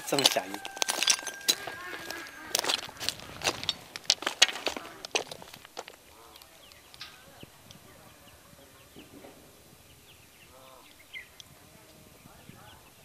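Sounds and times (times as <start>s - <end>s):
high bird chirps: 0.0s - 3.4s
low animal call: 0.6s - 3.5s.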